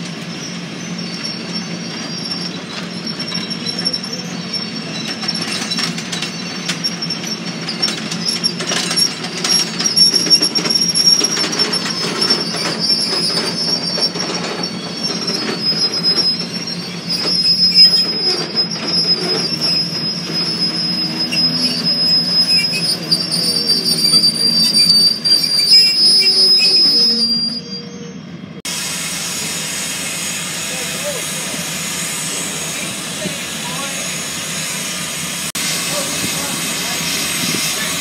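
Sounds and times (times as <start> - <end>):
rumbling clatter: 0.0 - 26.2
train wheels squealing: 0.0 - 38.0.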